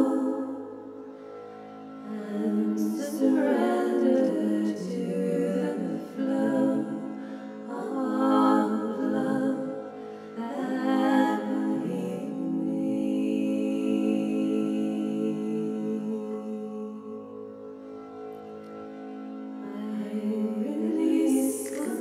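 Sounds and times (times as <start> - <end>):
woman singing wordlessly: 2.1 - 7.0, 19.8 - 22.0.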